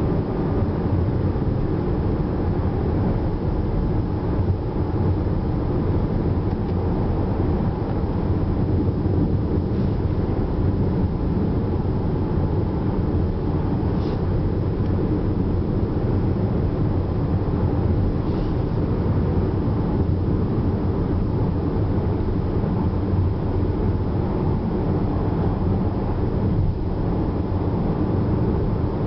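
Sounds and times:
car engine hum: 0.0 - 29.0.

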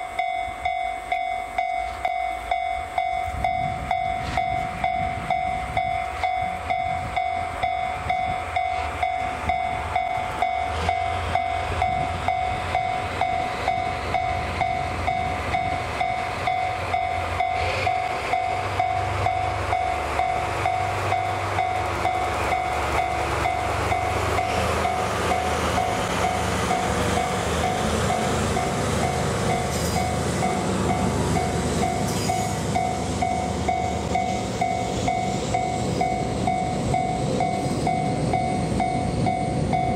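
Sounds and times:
level crossing alarm bell: 0.0 - 26.4, 27.2 - 39.9
diesel locomotive engines rumbling: 0.0 - 39.9.

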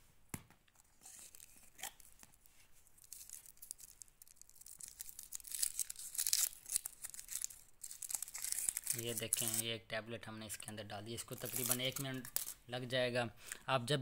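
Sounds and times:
foil wrapper tearing: 3.0 - 9.7, 11.3 - 12.6.

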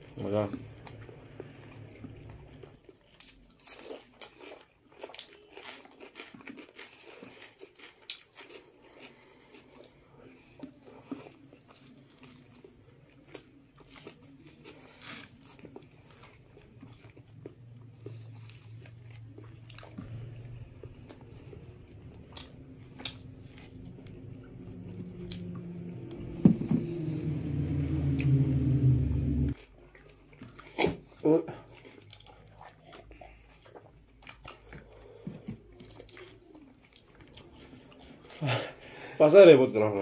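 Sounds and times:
people chewing and lip-smacking: 0.1 - 26.3, 29.5 - 39.0
low droning hum: 16.6 - 29.6.

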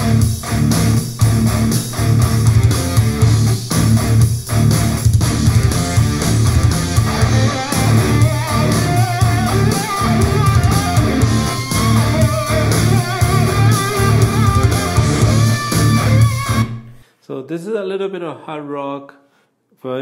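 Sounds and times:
hard rock music on a speaker: 0.0 - 17.0
strong bass line: 0.0 - 17.0.

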